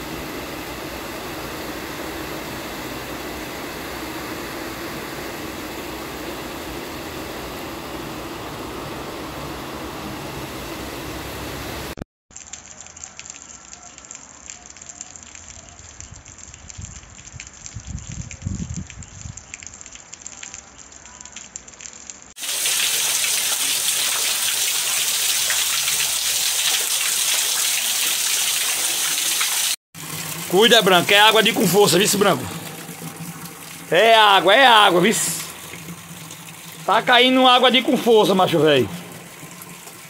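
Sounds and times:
steady rain hiss: 0.0 - 40.0
downpour splashing on pavement: 12.3 - 40.0
water dripping off a roof edge: 12.3 - 40.0.

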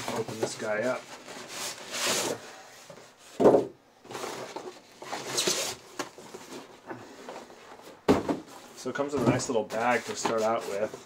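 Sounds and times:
cardboard flaps scraping and rustling: 0.0 - 3.4, 4.0 - 11.0.

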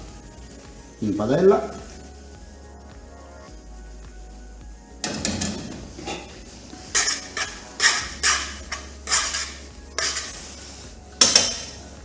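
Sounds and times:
pasta swishing in frying pan: 5.7 - 12.0.

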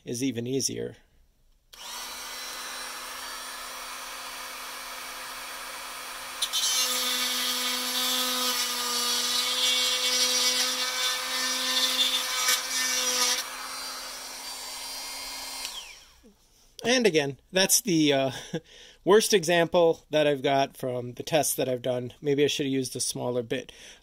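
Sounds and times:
rotary tool whine: 1.8 - 16.2
rotary tool grinding plastic: 4.7 - 14.6.

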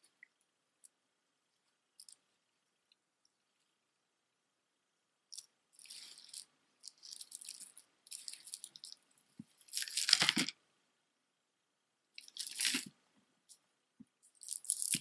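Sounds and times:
beaded necklace rattling and clicking: 2.0 - 2.2, 5.3 - 10.5, 12.2 - 12.9, 14.2 - 15.0.

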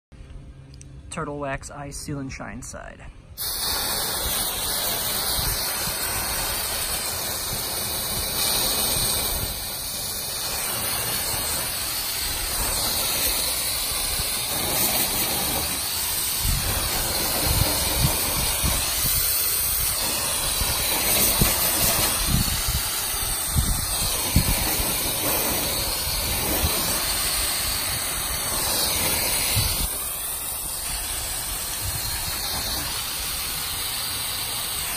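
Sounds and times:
water spraying on car panels: 3.4 - 34.9.

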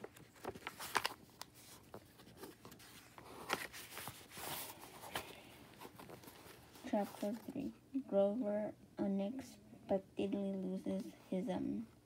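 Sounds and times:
book pages rustling: 0.0 - 7.7.

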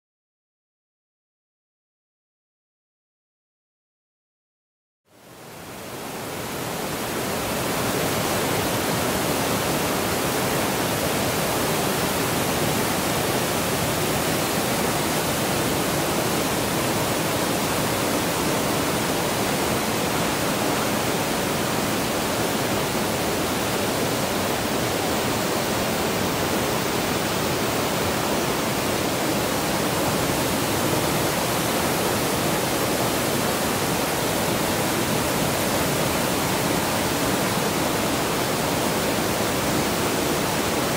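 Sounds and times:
whitewater rapids rushing: 5.5 - 40.9.

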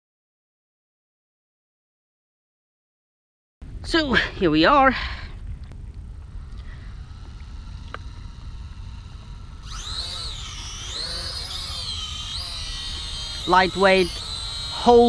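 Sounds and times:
wind rumble on microphone: 3.6 - 9.8
toy quadcopter motors whining: 6.1 - 15.0.

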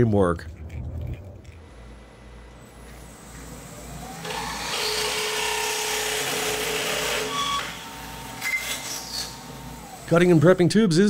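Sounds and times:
power tool whining on metal: 1.6 - 10.7.

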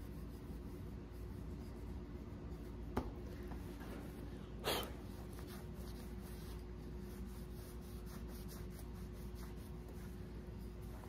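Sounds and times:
steady hum: 0.0 - 11.0
cloth wiping wood: 3.6 - 11.0.

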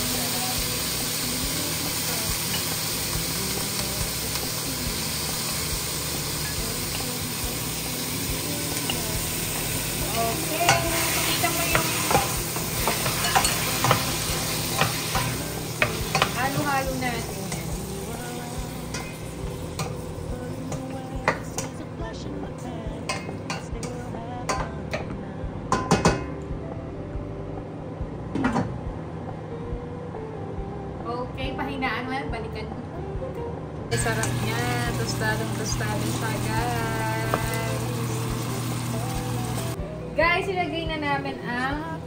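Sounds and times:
meat sizzling in a pan: 0.0 - 21.7, 34.0 - 39.8.

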